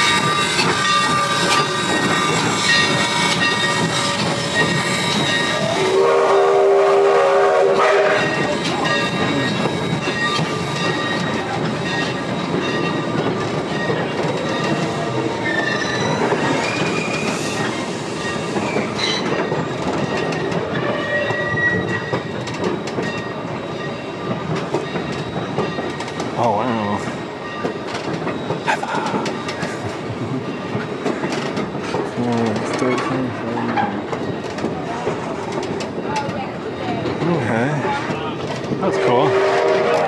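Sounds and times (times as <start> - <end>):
steam train wheels clacking: 0.0 - 40.0
train whistle: 3.6 - 8.6, 38.8 - 40.0.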